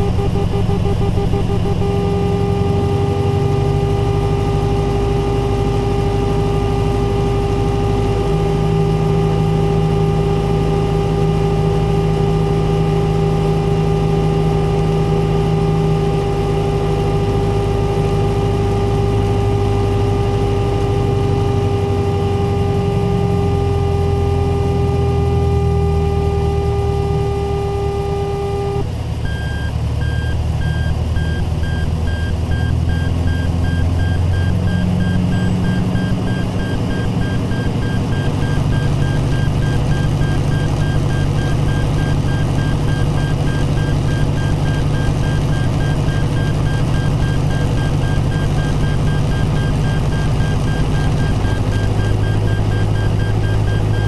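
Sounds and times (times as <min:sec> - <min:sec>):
steady low cue tone: 0:00.0 - 0:20.5
aircraft engine and propeller drone: 0:00.0 - 0:54.0
higher warning beeps: 0:29.2 - 0:54.0.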